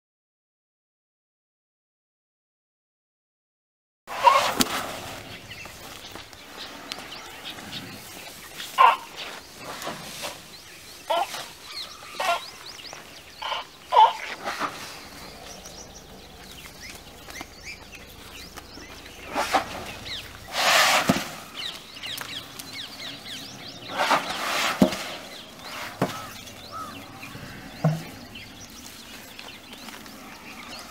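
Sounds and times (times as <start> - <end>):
elephant squeaks: 4.1 - 5.0, 19.3 - 21.4
elephant trumpeting: 4.1 - 5.6, 8.8 - 9.2, 11.0 - 12.6, 13.4 - 15.3, 19.0 - 22.2, 23.8 - 28.6.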